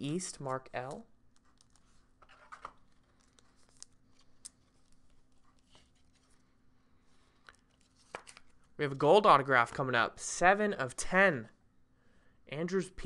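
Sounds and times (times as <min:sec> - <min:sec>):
faint steady hum: 0:00.0 - 0:13.0
small handling clicks and rustles: 0:00.4 - 0:06.5.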